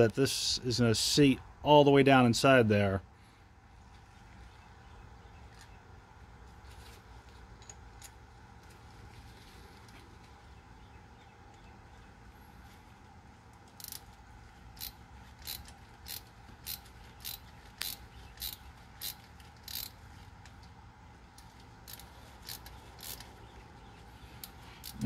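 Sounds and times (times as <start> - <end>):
ratchet pawl clicking: 13.7 - 14.1, 14.7 - 20.0, 21.4 - 23.3, 24.4 - 25.0.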